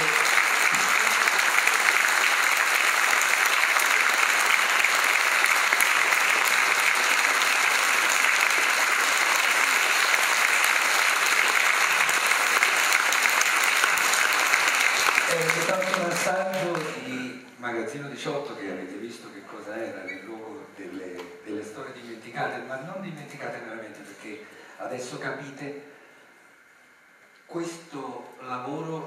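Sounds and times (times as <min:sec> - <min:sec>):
audience applauding: 0:00.0 - 0:17.2.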